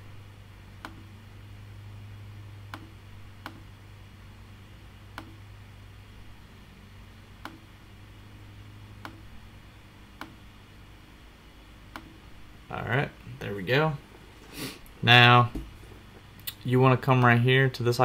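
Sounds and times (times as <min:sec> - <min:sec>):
low steady hum: 0:00.0 - 0:18.0
computer mouse clicking: 0:00.8 - 0:01.0, 0:02.7 - 0:03.6, 0:07.4 - 0:07.7, 0:11.9 - 0:12.2.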